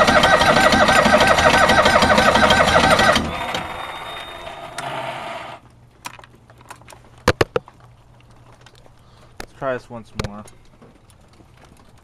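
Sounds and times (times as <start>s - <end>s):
car starter cranking engine: 0.0s - 5.6s.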